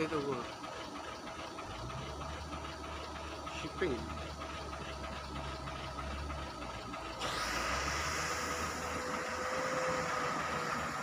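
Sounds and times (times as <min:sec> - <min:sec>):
diesel engines rumbling: 0:00.0 - 0:11.0.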